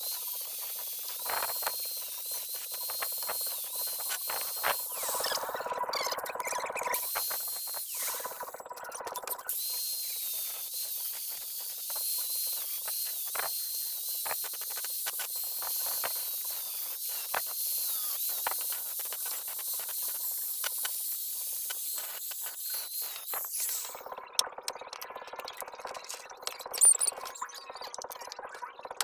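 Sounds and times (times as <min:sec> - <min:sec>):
angle grinder grinding metal: 0:00.0 - 0:06.2, 0:06.8 - 0:08.6, 0:09.3 - 0:24.1.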